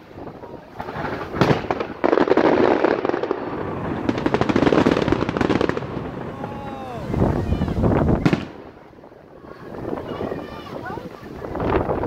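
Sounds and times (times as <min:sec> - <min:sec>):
firework bang: 0:00.0 - 0:08.9
fireworks crackling: 0:00.0 - 0:12.0.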